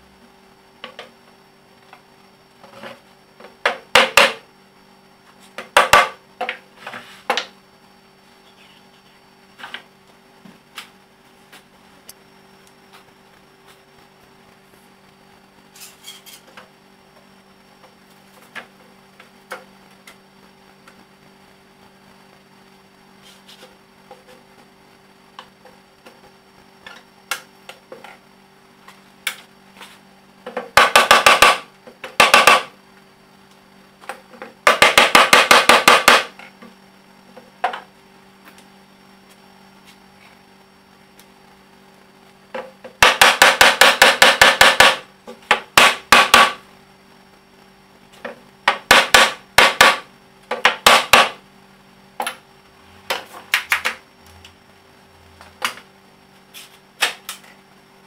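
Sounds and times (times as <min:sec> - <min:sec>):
rubber mallet beating on wooden table: 0:05.7 - 0:06.2, 0:30.7 - 0:32.7, 0:34.6 - 0:36.3, 0:43.0 - 0:46.6, 0:48.7 - 0:51.4.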